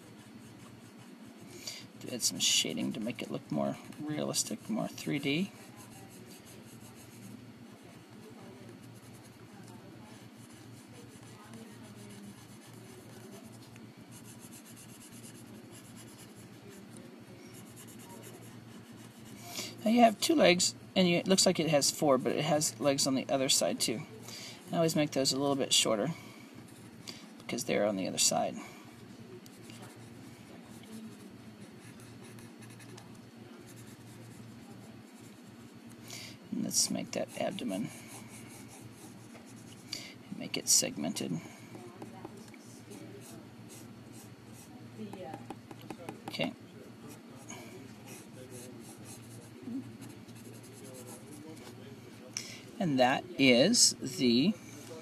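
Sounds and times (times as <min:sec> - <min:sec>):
faint low hum: 0:00.0 - 0:55.0
pencil scratching on paper: 0:10.1 - 0:16.7, 0:17.4 - 0:19.4, 0:30.8 - 0:33.0, 0:48.1 - 0:51.4.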